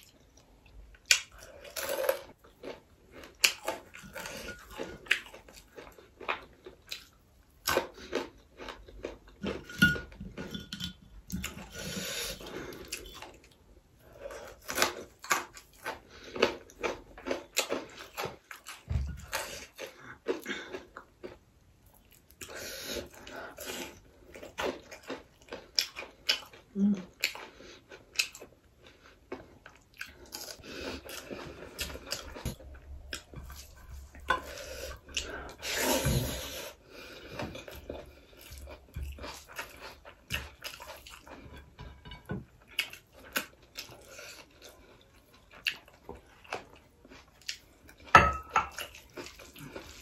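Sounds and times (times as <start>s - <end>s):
chewing and lip smacking: 37.5s - 41.6s, 42.6s - 48.1s.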